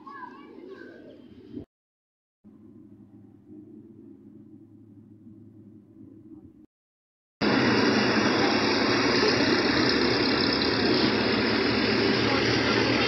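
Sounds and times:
road traffic noise: 7.4 - 13.0.

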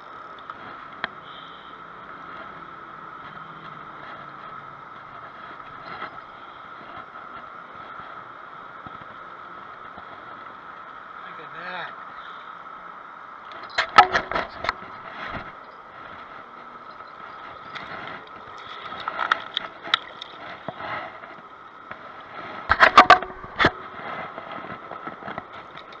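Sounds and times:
steady background hum: 0.0 - 26.0
fish slapping on rocks: 17.6 - 21.4.

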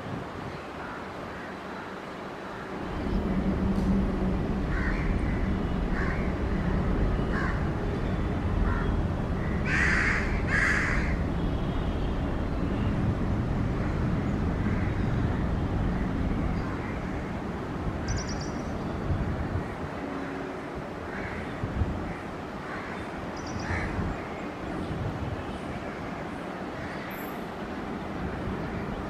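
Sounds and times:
train rumbling: 2.2 - 25.2
crow cawing: 4.7 - 6.3, 7.3 - 7.7, 8.6 - 8.9, 9.6 - 11.2.

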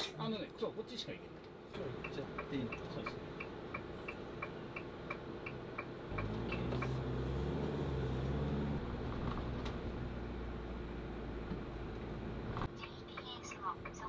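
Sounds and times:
engine drone: 1.7 - 14.0
turn signal clicking: 2.0 - 7.1.

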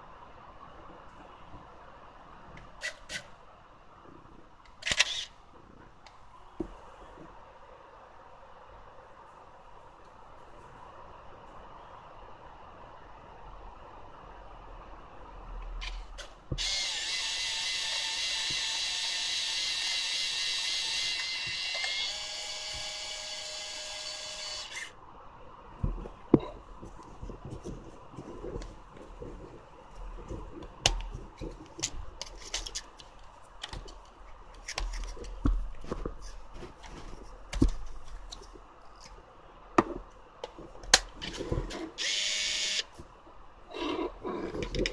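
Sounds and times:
camera motor whirring: 16.6 - 24.9, 42.0 - 42.9.

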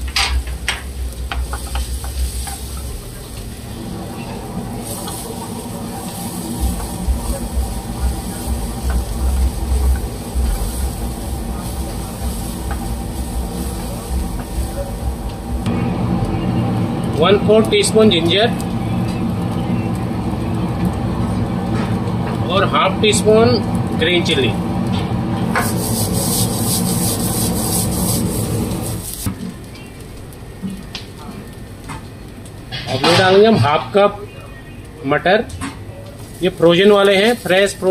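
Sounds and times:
vegetables stirred in frying pan: 0.0 - 15.7, 25.0 - 30.4, 36.1 - 37.9
low rumble: 0.0 - 29.3
spatula scraping frying pan: 25.6 - 29.3.

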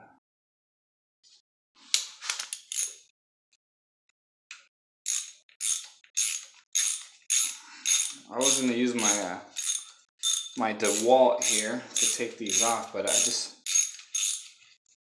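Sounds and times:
hand ratchet clicking: 5.1 - 14.6.

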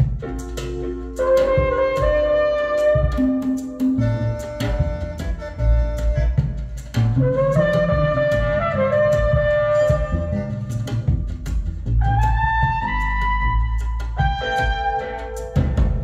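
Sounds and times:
bass line: 0.0 - 16.0
hand drum percussion: 0.0 - 16.0
reed woodwind melody: 0.0 - 16.0.

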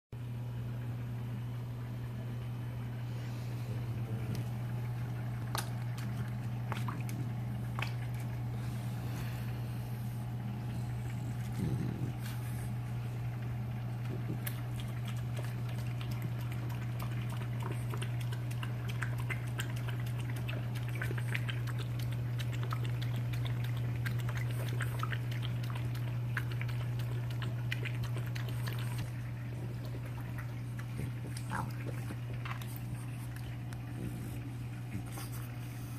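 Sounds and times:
steady low hum: 0.2 - 35.9
dog lapping water from metal bowl: 5.4 - 8.5, 14.0 - 34.4.

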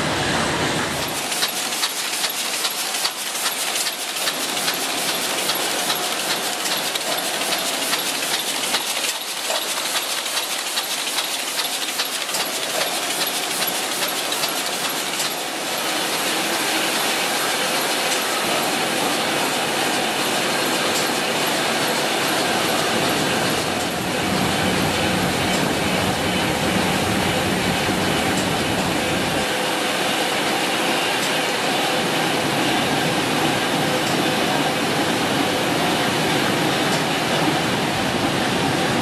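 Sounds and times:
printing press clattering: 1.0 - 29.5.

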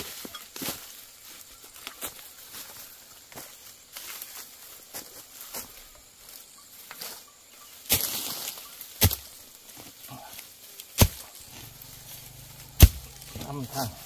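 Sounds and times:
rustle of leaves and undergrowth: 0.0 - 14.0
blade chopping bamboo: 9.0 - 9.3, 11.0 - 11.2, 12.8 - 13.5.

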